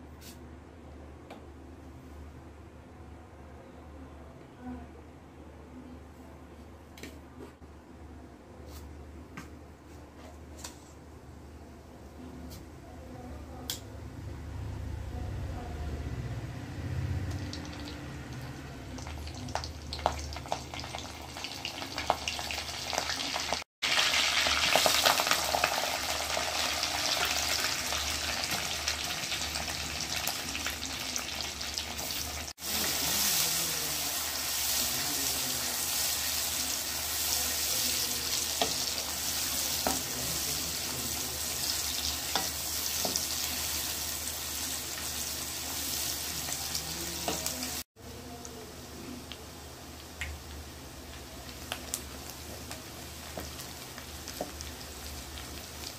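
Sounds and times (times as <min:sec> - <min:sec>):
onions frying: 0:16.8 - 0:55.9
seeds crackling in hot oil: 0:17.0 - 0:55.9.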